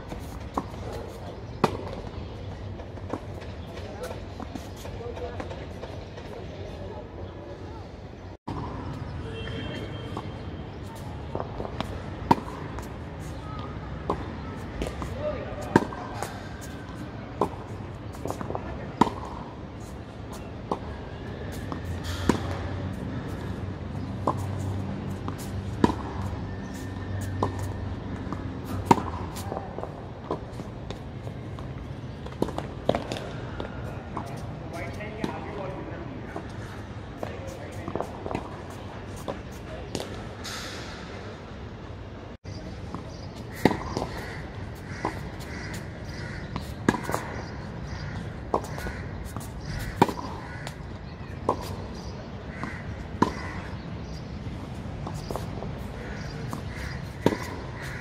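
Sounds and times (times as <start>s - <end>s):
tennis ball bounces: 0.1s - 2.2s, 10.9s - 20.9s, 21.5s - 35.7s, 37.2s - 40.9s, 42.8s - 44.3s, 45.0s - 58.0s.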